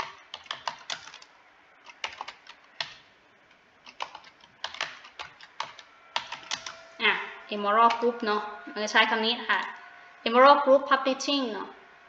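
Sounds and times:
typing on computer keyboard: 0.0s - 3.0s, 3.8s - 6.8s.

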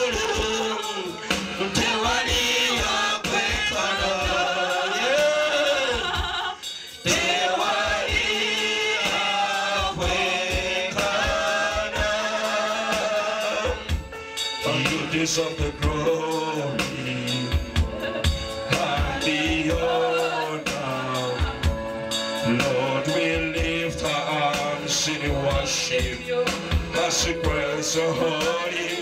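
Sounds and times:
man singing into a microphone: 0.0s - 6.4s, 14.6s - 21.7s, 22.4s - 29.0s
congregation singing: 0.0s - 29.0s.

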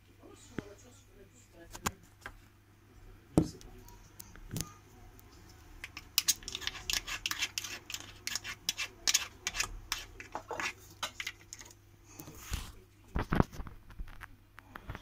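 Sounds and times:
plastic scoops clicking and scraping: 4.5s - 12.6s.

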